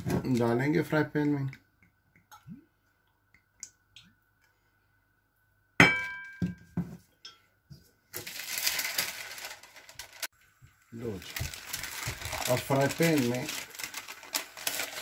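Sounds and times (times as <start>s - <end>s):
glass bottle set down on counter: 5.8s - 7.0s.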